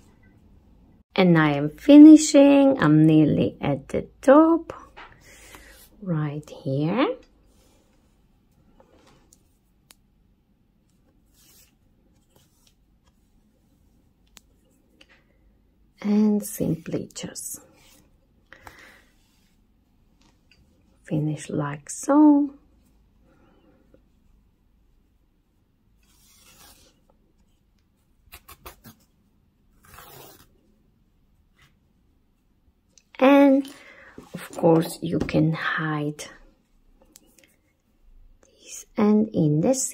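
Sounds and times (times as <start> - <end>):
yarn rustling through fabric: 10.9 - 15.0.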